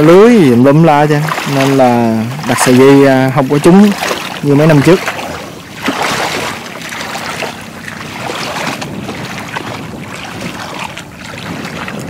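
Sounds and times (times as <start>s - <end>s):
water sloshing from wading: 0.0s - 12.0s.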